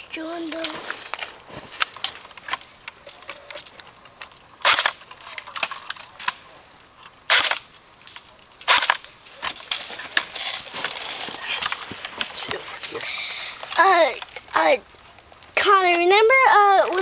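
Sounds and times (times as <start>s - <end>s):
sharp clicks: 1.8s - 6.4s, 7.0s - 10.3s
airsoft rifle bursts: 4.6s - 5.8s, 7.3s - 7.6s.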